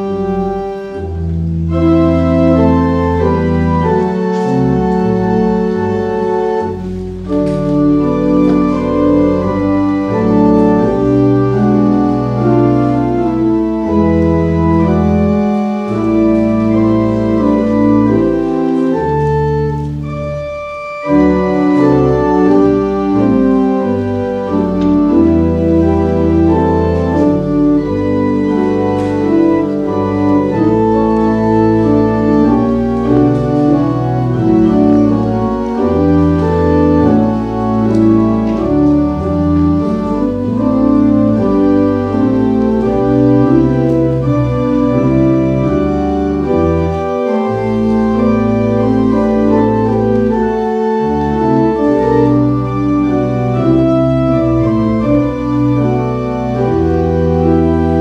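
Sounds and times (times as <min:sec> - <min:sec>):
church organ chords: 0:00.0 - 0:58.0.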